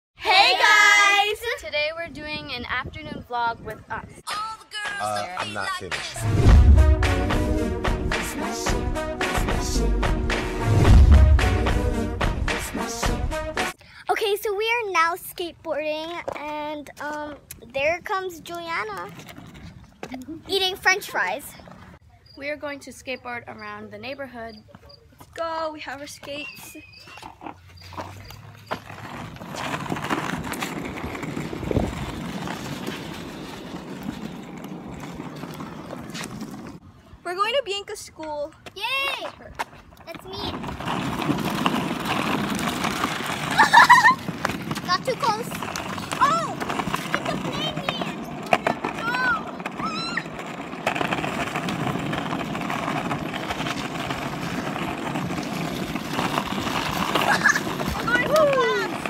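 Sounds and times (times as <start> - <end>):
skateboard wheels rolling: 0.2 - 1.6, 15.0 - 22.0, 25.4 - 59.0
clicks from pavement joints: 44.2 - 49.8, 50.6 - 59.0.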